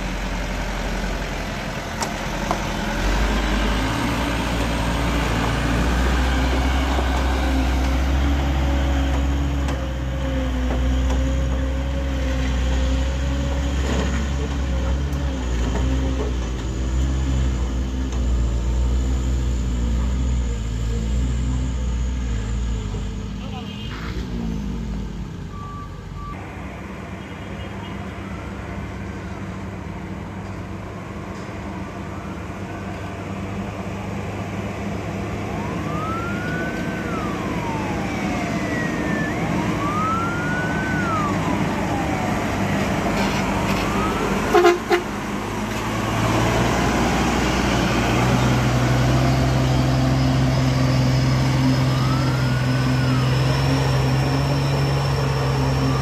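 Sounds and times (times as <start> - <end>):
diesel trucks labouring uphill: 0.0 - 56.0
rising and falling whine: 33.9 - 56.0.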